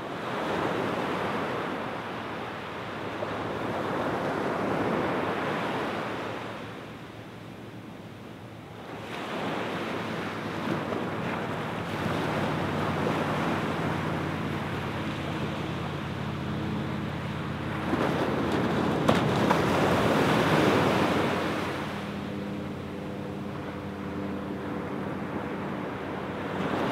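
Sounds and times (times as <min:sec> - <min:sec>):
small waves washing onto beach: 0:00.0 - 0:26.9.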